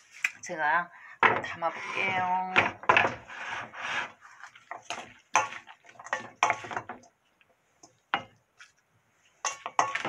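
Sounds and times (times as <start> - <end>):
wooden spoon scraping metal bowl: 1.3 - 7.0.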